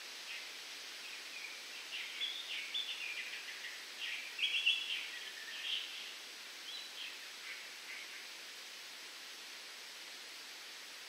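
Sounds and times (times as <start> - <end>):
wind in palm fronds: 0.0 - 11.0.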